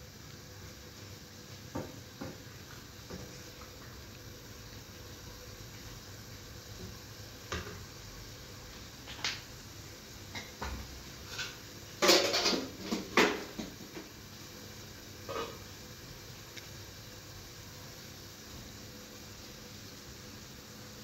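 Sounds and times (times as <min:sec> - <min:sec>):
metal cookware clinking: 0:11.3 - 0:13.4
utensils clattering: 0:11.3 - 0:13.4.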